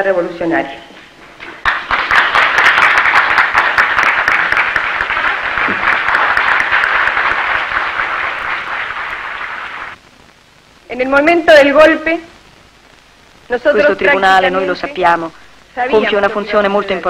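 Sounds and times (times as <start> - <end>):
audience applauding: 1.4 - 10.0.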